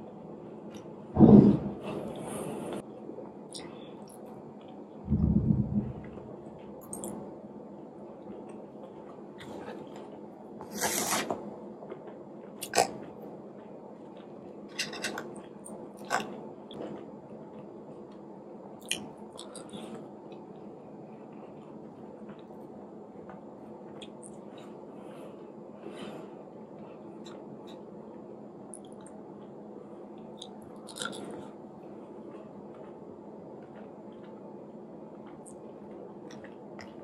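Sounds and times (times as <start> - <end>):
person chewing food: 8.2 - 24.9, 30.2 - 37.0.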